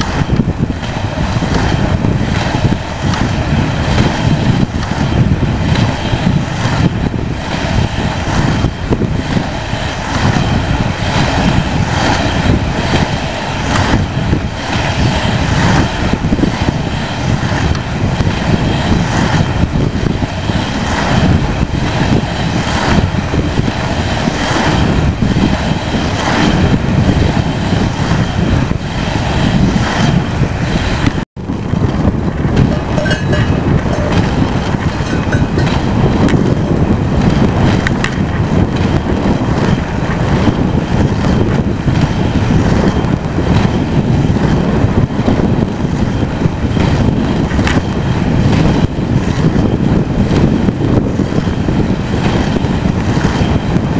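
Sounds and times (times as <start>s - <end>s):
skate wheels rolling on asphalt: 0.0s - 53.9s
wind on microphone: 0.0s - 53.9s.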